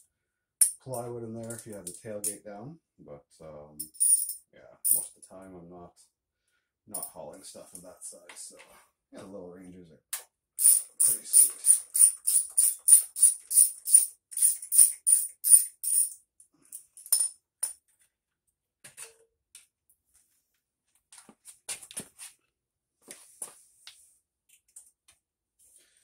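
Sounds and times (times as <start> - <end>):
ratchet wrench clicking: 10.6 - 16.2.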